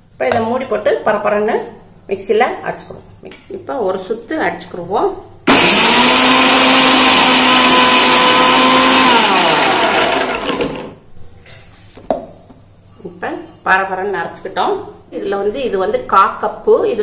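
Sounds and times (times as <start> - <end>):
mixer grinder whining: 5.5 - 11.0.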